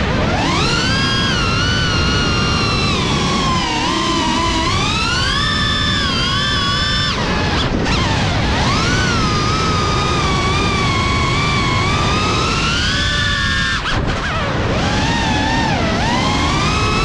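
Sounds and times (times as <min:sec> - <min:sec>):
drone propellers whining: 0:00.0 - 0:17.0.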